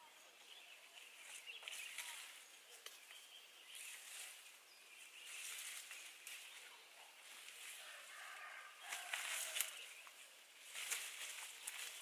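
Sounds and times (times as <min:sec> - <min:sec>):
leaves and twigs rustling: 0:00.0 - 0:12.0
rural outdoor ambience: 0:00.0 - 0:12.0
light twig snaps: 0:01.6 - 0:03.2, 0:08.8 - 0:12.0.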